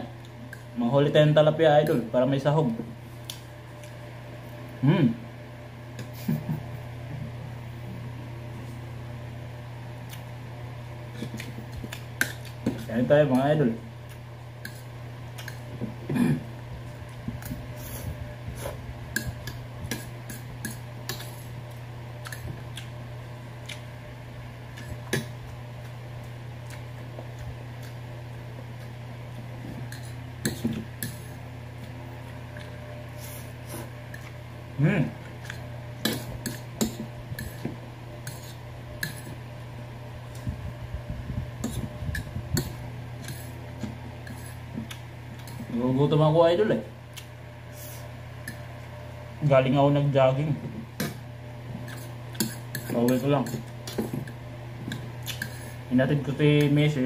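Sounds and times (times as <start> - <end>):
steady low hum: 0.0 - 57.0
fork scraping plate: 14.6 - 15.7, 17.7 - 21.5, 29.7 - 31.4, 35.4 - 39.4, 41.6 - 45.7, 51.8 - 55.8.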